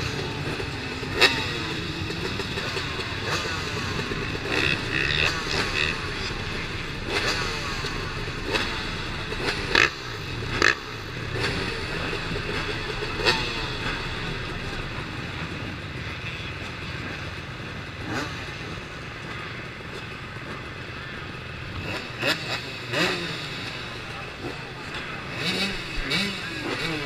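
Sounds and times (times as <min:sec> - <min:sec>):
sharp throttle revs: 0:00.0 - 0:15.2, 0:21.6 - 0:27.0
dirt bike engines idling: 0:00.0 - 0:27.0.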